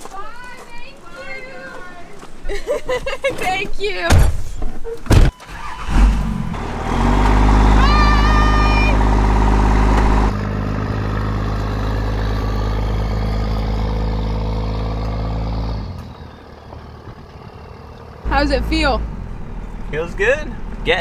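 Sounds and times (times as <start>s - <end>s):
truck engine running at low speed: 6.0s - 21.0s.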